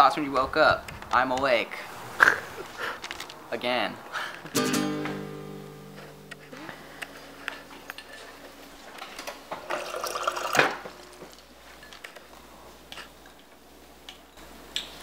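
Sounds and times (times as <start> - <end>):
background music chord: 4.6 - 7.9
water running into a glass: 9.7 - 10.9.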